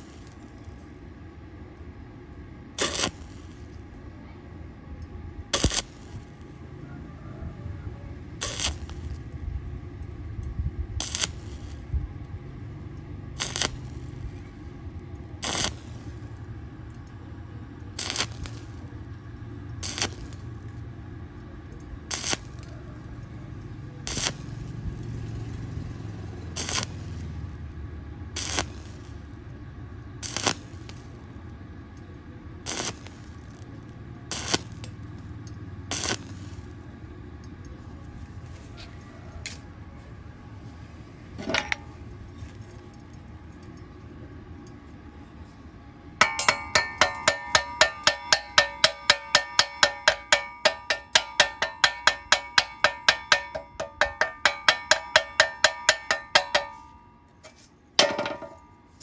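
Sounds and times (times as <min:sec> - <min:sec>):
arc welding crackle: 0:00.0 - 0:01.1, 0:02.5 - 0:04.0, 0:05.0 - 0:06.8, 0:08.1 - 0:37.2, 0:46.2 - 0:57.7
steady low rumble: 0:00.0 - 0:25.2, 0:39.7 - 0:59.0.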